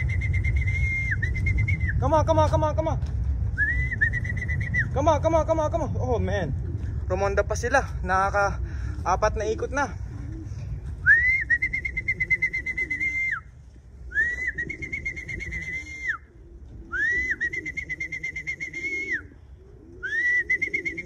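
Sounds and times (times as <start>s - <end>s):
trilling whistle blasts: 0.0s - 2.0s, 3.6s - 4.9s, 11.0s - 13.5s, 14.1s - 16.3s, 16.9s - 19.3s.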